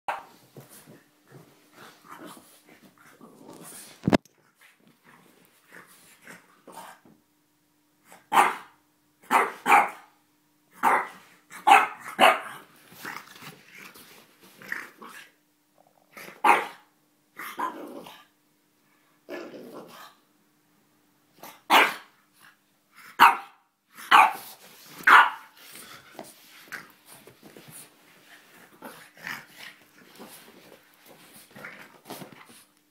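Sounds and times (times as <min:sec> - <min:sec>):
dog barking: 0:08.3 - 0:10.1, 0:10.8 - 0:12.6, 0:16.4 - 0:16.9, 0:21.7 - 0:22.1, 0:23.2 - 0:24.5, 0:25.1 - 0:25.5
dog growling: 0:19.3 - 0:20.0.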